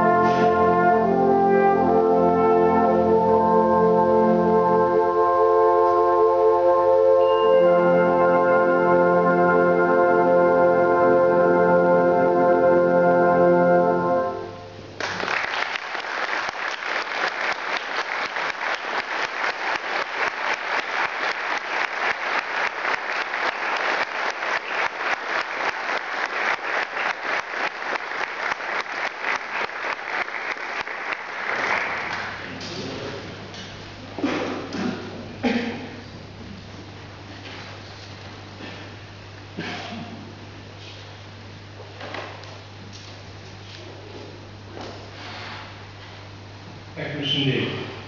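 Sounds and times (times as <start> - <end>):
brass band chord: 0.0 - 15.0
audience applause: 15.0 - 33.2.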